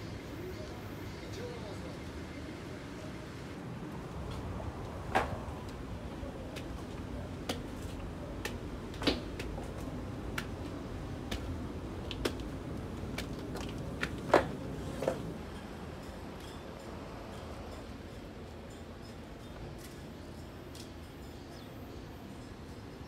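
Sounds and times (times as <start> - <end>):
light taps and clicks: 6.5 - 10.6.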